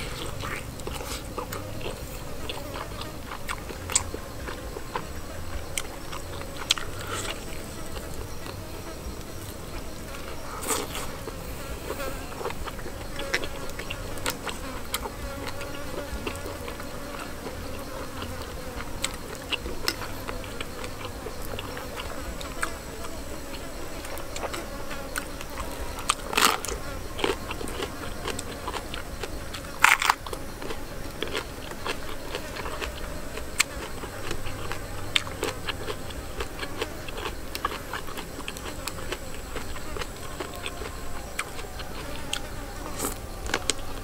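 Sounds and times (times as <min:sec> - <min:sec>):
person chewing chicken: 0:00.0 - 0:08.6, 0:09.6 - 0:17.6, 0:25.2 - 0:44.0
flying insect buzzing: 0:00.0 - 0:44.0.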